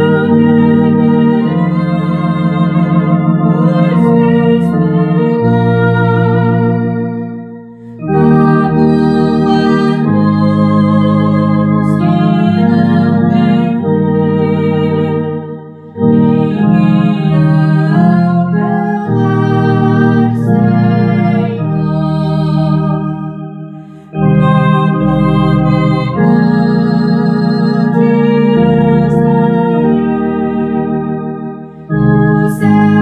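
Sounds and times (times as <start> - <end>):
woman singing: 0.0 - 6.9, 8.0 - 31.1, 32.0 - 33.0
organ playing hymn chords: 0.0 - 33.0.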